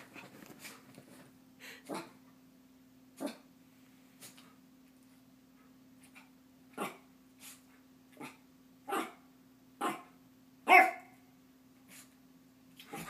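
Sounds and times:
faint low hum: 0.0 - 13.0
small dog yapping: 10.7 - 11.1.

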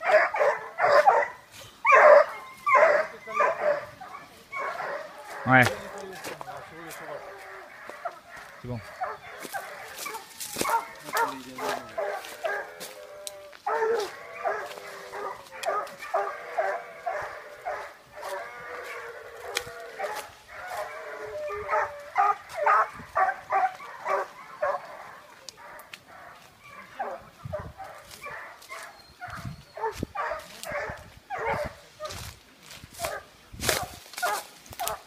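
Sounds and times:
puppies yipping and whining: 0.0 - 5.9.

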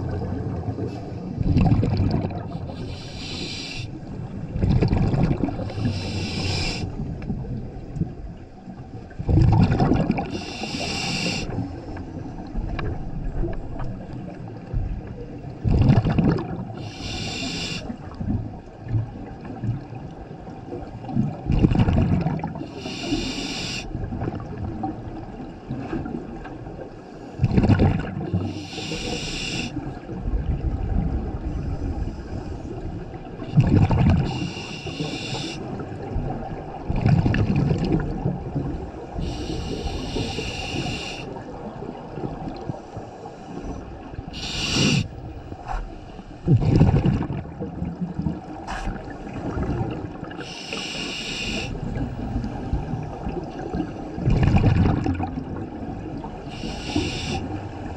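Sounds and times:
exhaled bubbles rushing: 0.0 - 2.8, 4.4 - 6.1, 9.1 - 10.4, 15.6 - 16.8, 21.0 - 22.6, 27.4 - 28.4, 33.3 - 34.4, 35.7 - 39.2, 46.4 - 50.4, 51.8 - 56.4
regulator hissing inhalation: 2.6 - 3.9, 5.7 - 7.0, 10.3 - 11.6, 16.8 - 17.9, 22.7 - 23.9, 28.4 - 29.8, 34.3 - 35.6, 39.2 - 41.3, 44.4 - 45.2, 50.4 - 51.8, 56.5 - 57.5.

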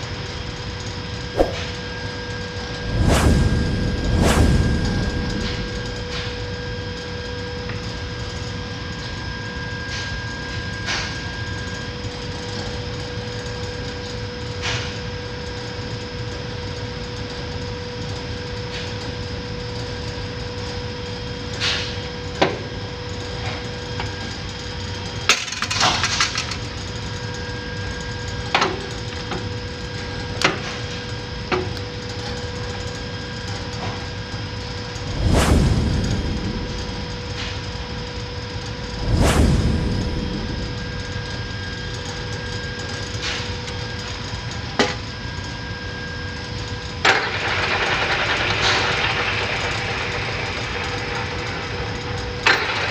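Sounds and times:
machine hum with whine: 0.0 - 52.9.

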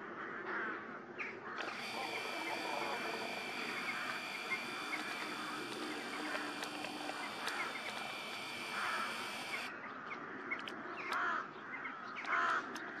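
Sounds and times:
crows cawing: 8.7 - 9.2, 11.2 - 11.5.

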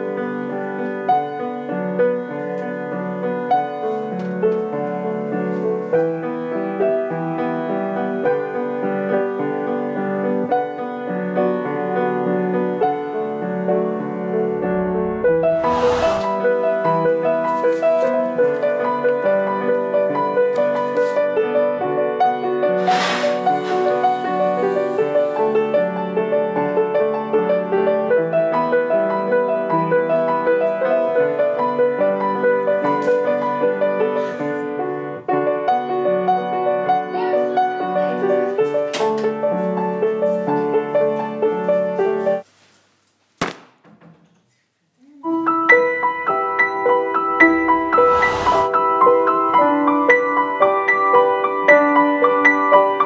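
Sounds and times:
solo piano music: 0.0 - 15.5, 48.7 - 53.0.

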